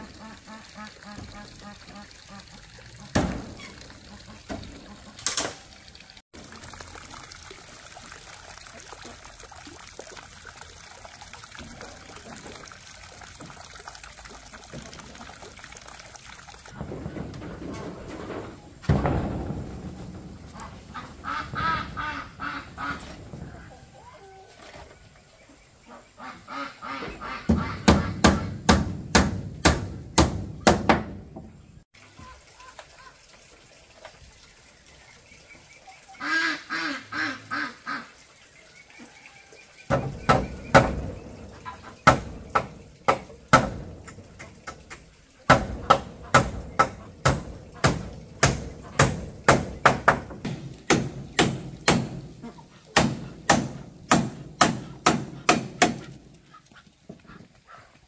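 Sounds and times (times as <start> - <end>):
ducks quacking: 0.0 - 5.2, 20.5 - 23.8, 25.8 - 28.6, 35.9 - 38.2, 54.8 - 58.0
sharp knocks: 27.5 - 31.5, 42.0 - 44.8, 45.5 - 52.3.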